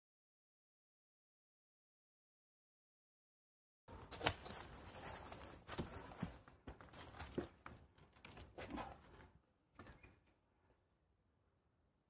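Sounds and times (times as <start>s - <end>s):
faint footsteps on forest track: 4.0s - 9.2s.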